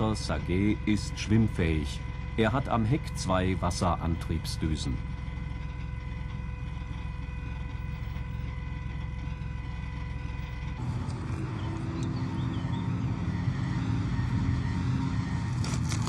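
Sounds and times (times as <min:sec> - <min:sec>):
armoured car engine running: 0:00.0 - 0:16.0.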